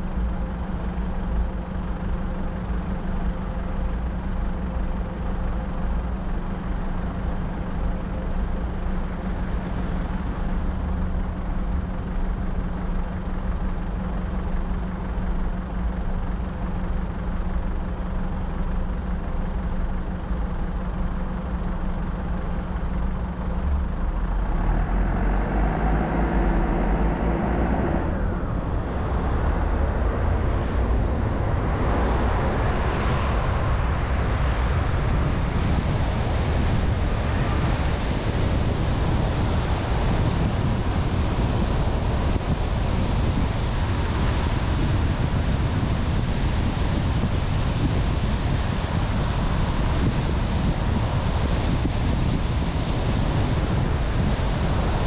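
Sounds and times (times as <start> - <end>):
road noise: 0.0 - 55.0
car engine accelerating: 22.3 - 55.0.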